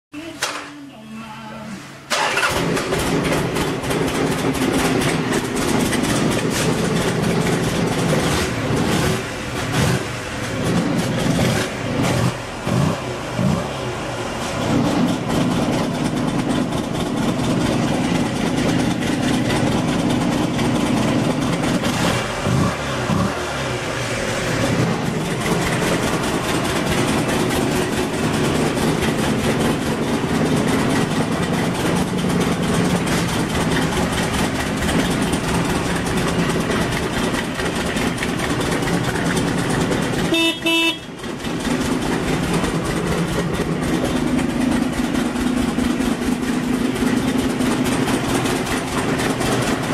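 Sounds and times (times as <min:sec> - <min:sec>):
motorcycle engine running: 0:02.2 - 0:49.9
motorcycle horn beeps: 0:40.3 - 0:41.2.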